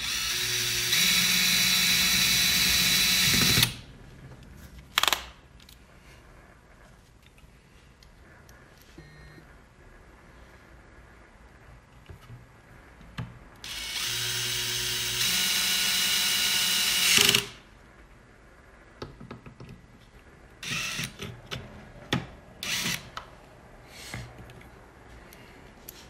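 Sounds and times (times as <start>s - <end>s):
cordless drill motor: 0.0s - 3.8s, 13.6s - 17.6s, 20.6s - 21.2s, 22.6s - 23.1s.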